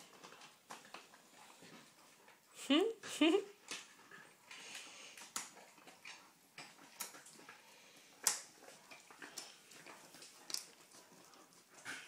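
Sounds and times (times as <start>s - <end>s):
dogs chewing crunchy treats: 0.0s - 12.0s.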